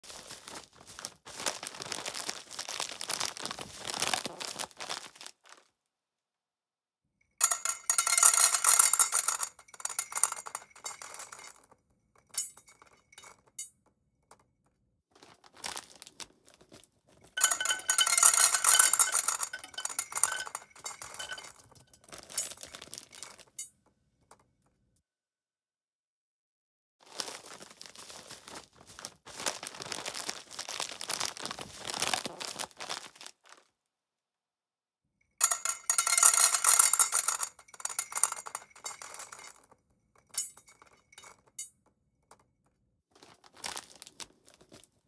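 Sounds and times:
cat food rattling in a dish: 7.4s - 11.6s, 17.4s - 23.6s, 35.4s - 39.6s.

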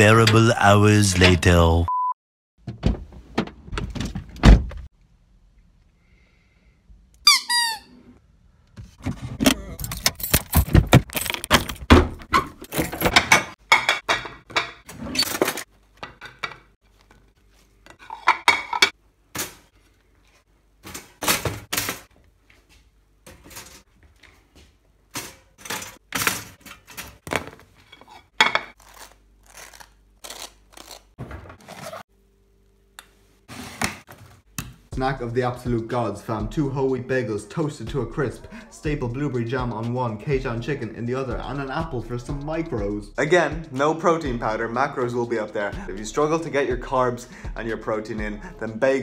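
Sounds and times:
dishes and cutlery clattering: 12.6s - 16.7s, 17.9s - 19.0s.

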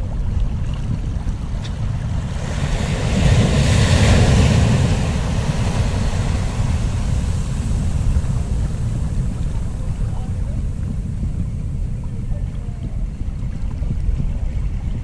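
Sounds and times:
wind buffeting microphone: 0.0s - 15.0s
sea surf washing in: 1.3s - 13.2s.

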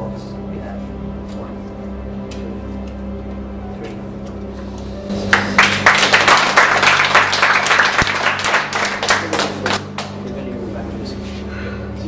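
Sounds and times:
soft background music: 0.0s - 12.0s
applause: 5.3s - 10.2s.

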